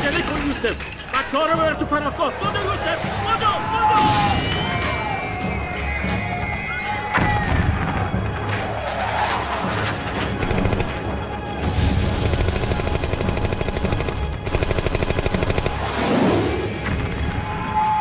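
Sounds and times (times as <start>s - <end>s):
music: 0.0s - 18.0s
machine-gun fire: 10.4s - 11.1s, 11.8s - 16.3s.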